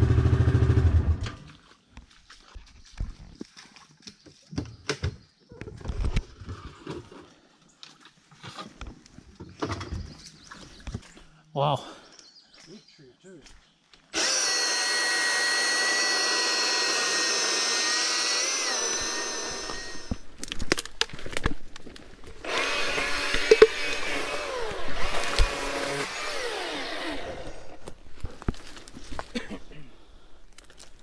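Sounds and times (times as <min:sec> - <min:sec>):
chainsaw running: 0:00.0 - 0:01.2, 0:14.1 - 0:20.2, 0:22.4 - 0:28.0
log and branches knocking and creaking: 0:02.6 - 0:11.2, 0:19.6 - 0:26.0, 0:27.8 - 0:29.5, 0:30.5 - 0:31.0.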